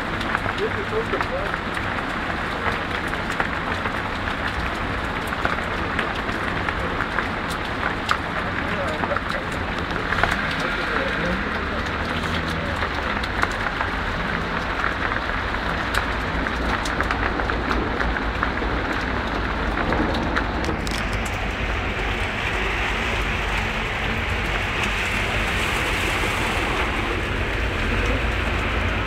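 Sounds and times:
heavy rain pouring: 0.0s - 29.0s
raindrops ticking close by: 0.0s - 29.0s.

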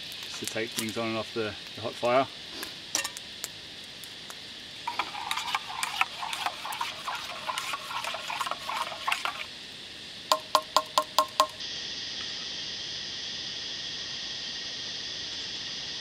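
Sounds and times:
metal spoon stirring in a metal mug: 4.9s - 9.5s.

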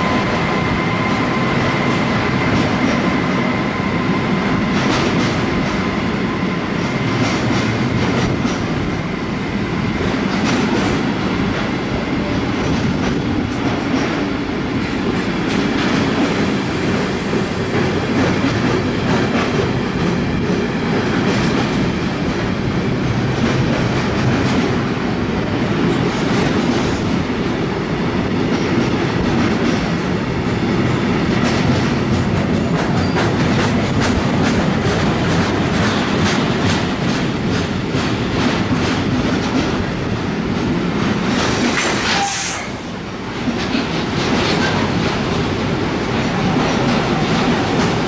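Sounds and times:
train wheels rumbling on rail: 0.0s - 48.0s
wheels clacking on rail joints: 31.0s - 42.3s, 43.4s - 48.0s.

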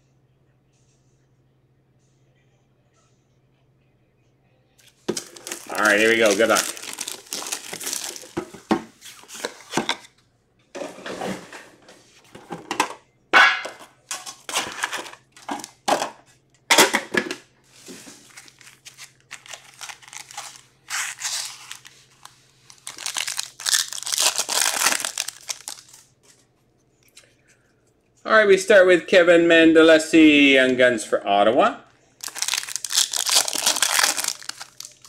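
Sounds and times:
foil wrappers crinkling and tearing: 4.8s - 9.8s, 14.1s - 15.8s, 17.8s - 26.4s, 32.2s - 35.0s.

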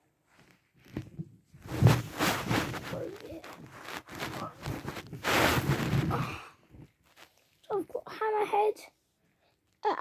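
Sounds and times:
phone rubbing against clothing: 1.6s - 6.2s.

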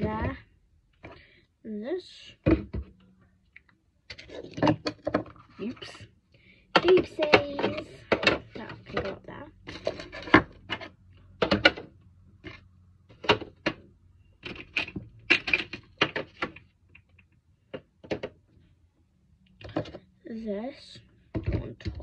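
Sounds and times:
plastic bottles clicking and knocking: 4.1s - 6.0s, 6.7s - 18.4s, 19.5s - 20.1s, 21.3s - 22.0s.

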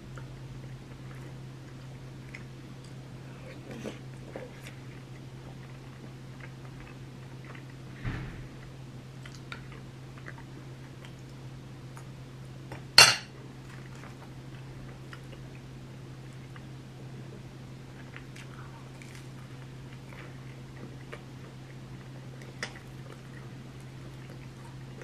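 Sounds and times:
steady low hum: 0.0s - 25.0s
soft thump: 8.0s - 8.6s.

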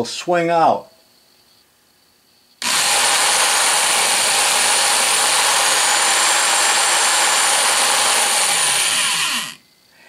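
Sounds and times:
drill running loudly: 2.6s - 9.6s.

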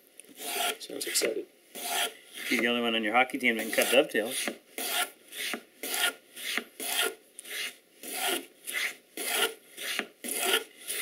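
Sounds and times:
plane scraping through wood: 0.4s - 0.8s, 1.8s - 2.6s, 3.6s - 11.0s.

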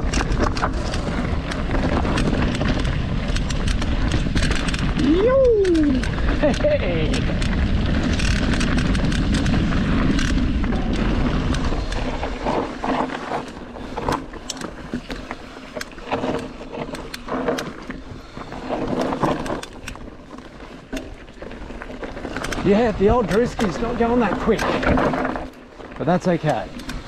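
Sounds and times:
wind rushing over microphone: 0.0s - 12.9s
bike rattling over bumps: 0.0s - 27.0s.

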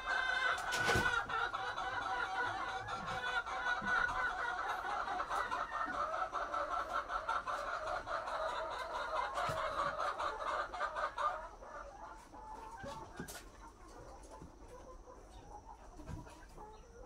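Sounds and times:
hens clucking: 0.0s - 17.0s.

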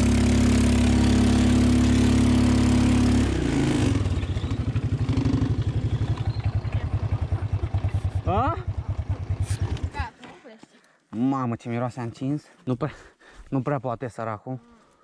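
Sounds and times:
atv engine revving and idling: 0.0s - 10.2s.

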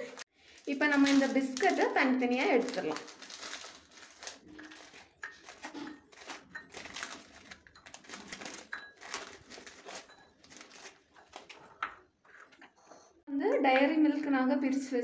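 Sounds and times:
plastic wrapper crinkling: 0.0s - 11.6s.

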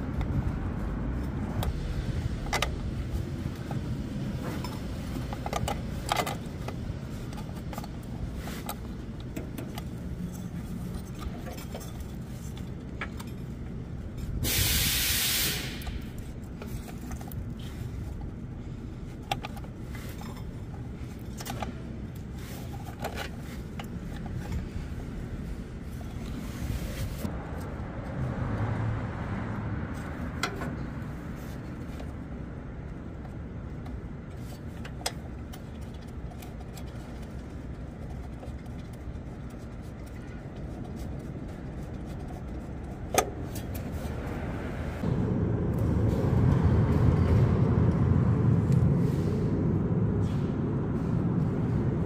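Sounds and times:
loud spray hiss: 14.4s - 15.9s.

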